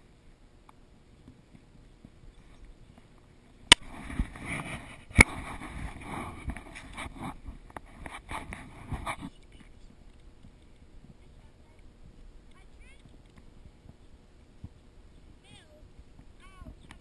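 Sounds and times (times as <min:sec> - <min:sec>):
rubbing against microphone: 0:03.8 - 0:15.8.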